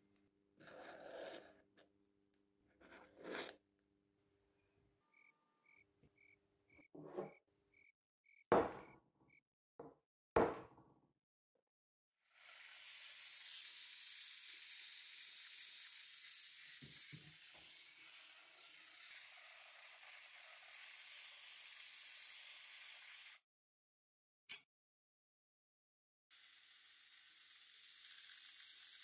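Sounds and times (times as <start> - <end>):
gas torch hissing: 12.4 - 23.4, 26.4 - 29.0.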